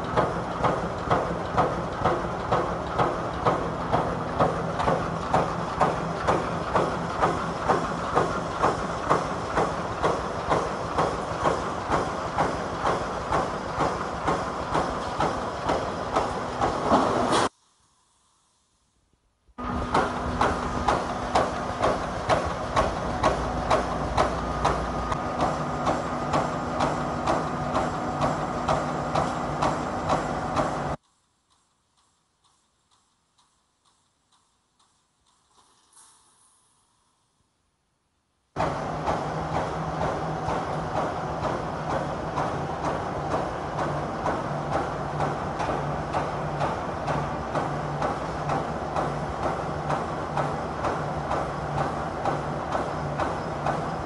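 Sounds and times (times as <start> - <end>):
welding machine clacking: 0.0 - 17.4, 19.6 - 36.2, 38.6 - 54.0
machine hum: 19.6 - 31.0, 38.6 - 54.0.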